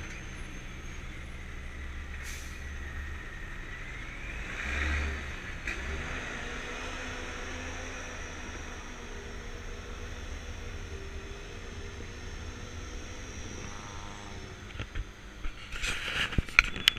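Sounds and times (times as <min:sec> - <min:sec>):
slow car traffic rumble: 0:00.0 - 0:16.9.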